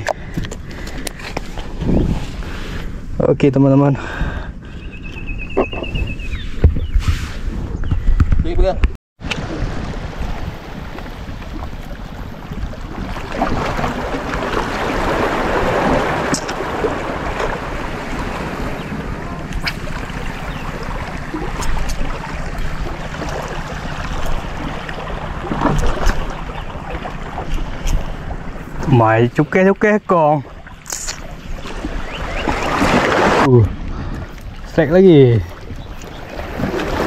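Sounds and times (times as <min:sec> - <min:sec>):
wind buffeting microphone: 0:00.0 - 0:03.2, 0:04.0 - 0:29.0
waves washing against rocks: 0:09.2 - 0:28.4, 0:36.4 - 0:37.0.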